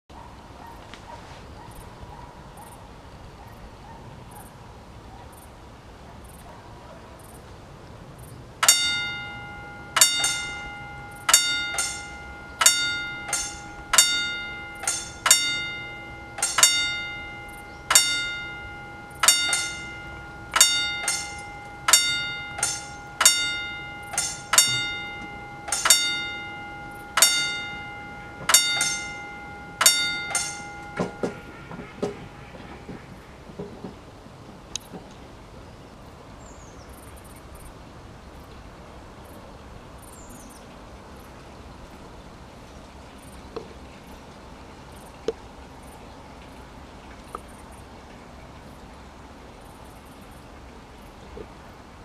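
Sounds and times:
level crossing warning bell: 8.6s - 33.9s.

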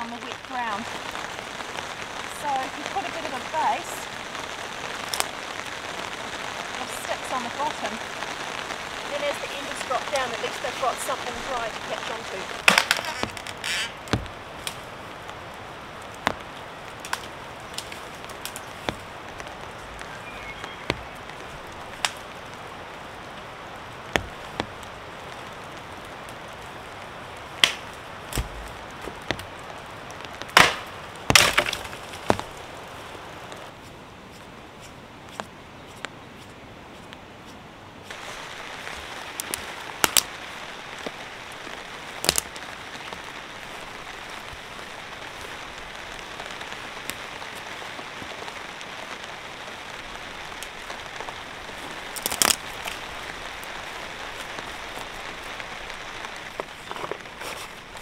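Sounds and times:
rain on a tarp: 0.0s - 58.0s
sticks snapping and knocking: 12.6s - 15.4s, 16.0s - 20.2s, 20.8s - 22.3s, 24.1s - 24.9s, 27.5s - 32.6s, 38.8s - 40.3s, 42.2s - 42.6s, 51.8s - 53.3s.

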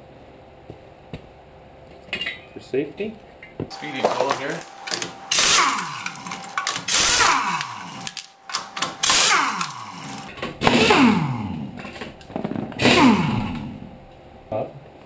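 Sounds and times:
pneumatic impact wrench bursts: 4.9s - 11.7s, 12.8s - 13.8s.

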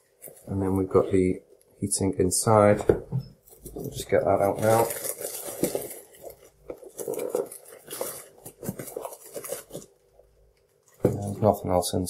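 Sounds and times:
packaging rustling and scraping: 0.0s - 1.1s, 3.4s - 11.6s.

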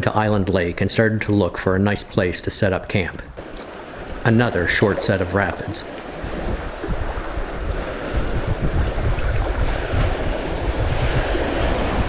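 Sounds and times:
wind buffeting microphone: 3.2s - 12.0s.

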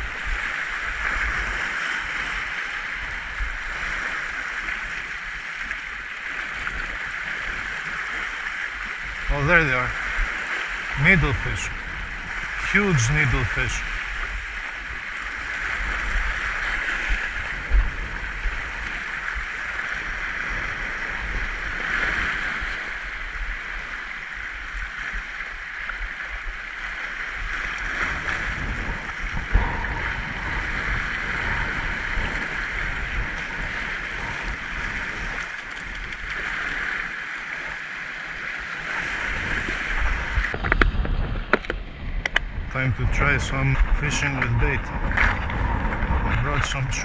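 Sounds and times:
waves breaking on rocks: 0.0s - 47.0s
wind rumbling on microphone: 0.0s - 47.0s.

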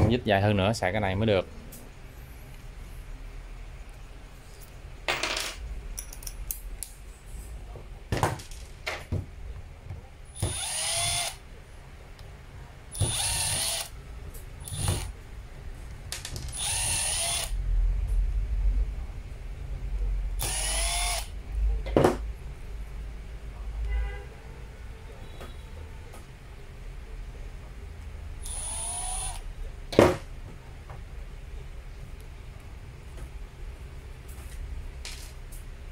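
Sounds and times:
cordless drill whining: 10.4s - 11.4s, 13.0s - 13.9s, 14.7s - 15.1s, 16.6s - 17.6s, 20.4s - 21.3s, 28.4s - 29.4s.

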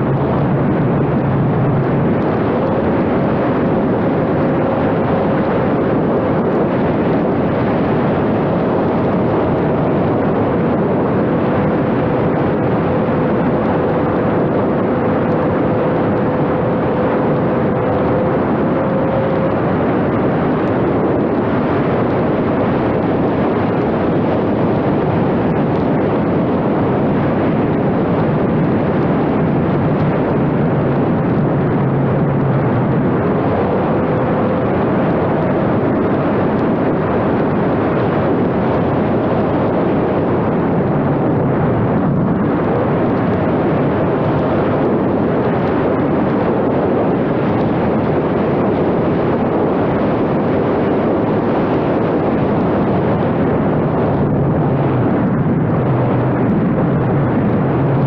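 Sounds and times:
motor and propeller hum: 0.0s - 58.0s
wind rushing over camera: 0.0s - 58.0s.

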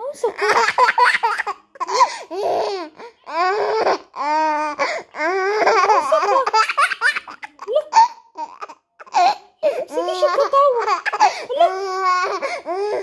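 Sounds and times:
toddler laughing: 5.2s - 13.0s.

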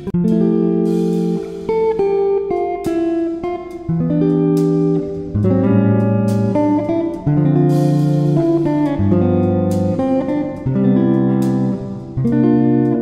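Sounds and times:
guitar plucking chords: 0.0s - 13.0s.

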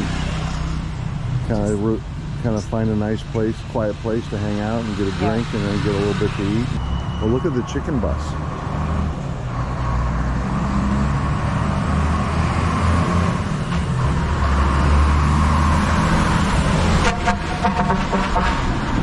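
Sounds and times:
bus engine running: 0.0s - 19.0s
street traffic: 0.0s - 19.0s.

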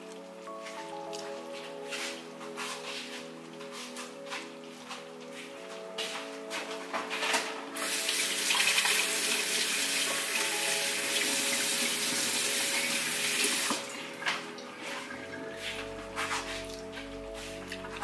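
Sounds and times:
background music: 0.0s - 18.0s
water running from a tap: 7.8s - 15.4s.

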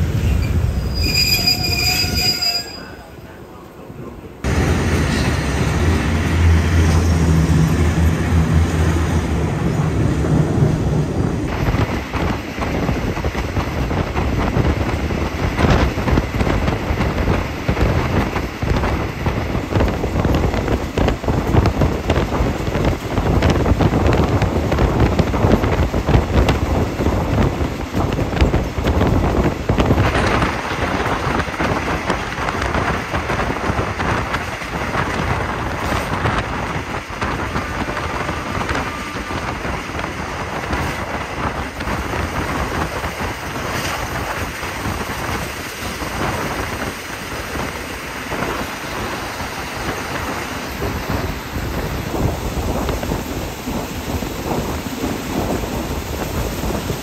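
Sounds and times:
train rushing noise: 0.0s - 57.0s.

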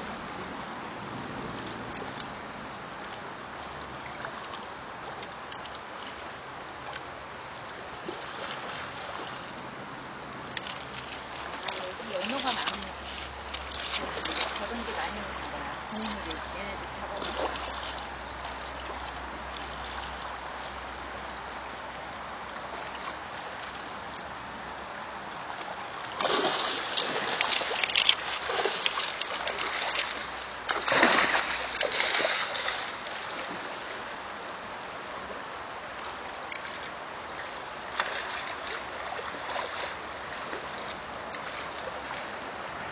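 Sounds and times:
stream running over gravel: 0.0s - 42.9s
fish thrashing and splashing: 10.8s - 16.4s, 25.9s - 33.5s.

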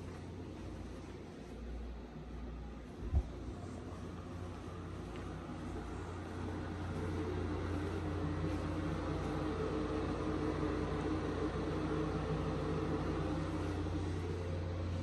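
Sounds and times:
ventilation fan humming: 0.0s - 15.0s
low drone: 3.4s - 15.0s.

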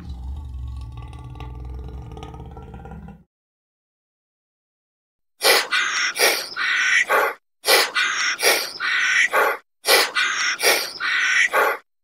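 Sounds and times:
bird-like animal call: 5.6s - 11.8s.

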